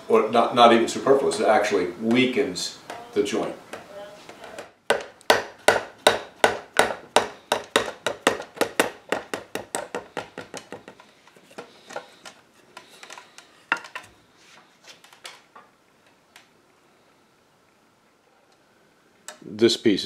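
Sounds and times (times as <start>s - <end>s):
mallet hammering wooden chair: 4.5s - 11.0s.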